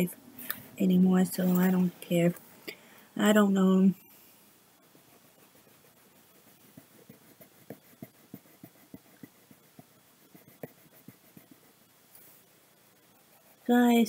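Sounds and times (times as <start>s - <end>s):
coloring strokes on paper: 4.8s - 14.0s.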